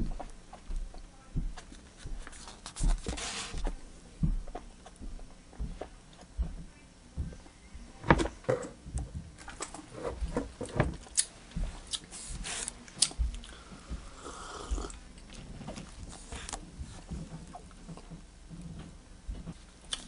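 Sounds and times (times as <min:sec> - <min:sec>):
swallowing: 0:13.5 - 0:15.0.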